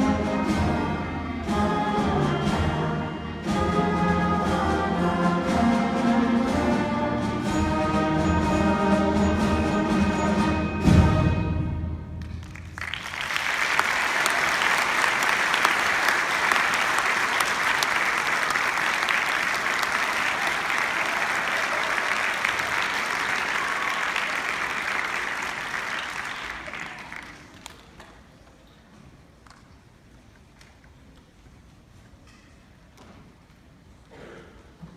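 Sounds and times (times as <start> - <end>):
audience applauding: 12.2 - 28.4.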